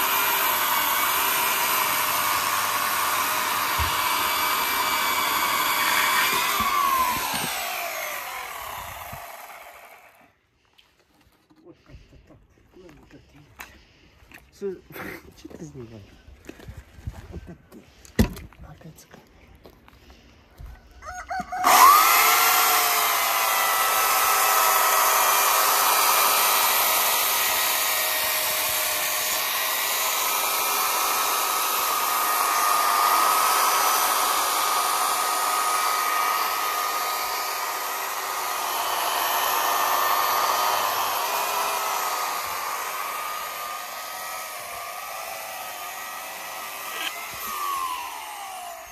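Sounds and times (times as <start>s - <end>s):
electric chainsaw cutting log: 0.0s - 10.4s, 21.4s - 48.9s.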